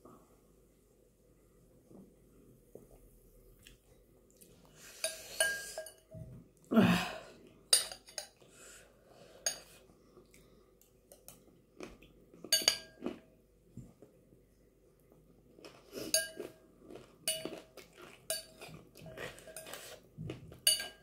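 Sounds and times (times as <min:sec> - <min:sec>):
metal spoon scraping glass bowl: 0:19.2 - 0:20.0.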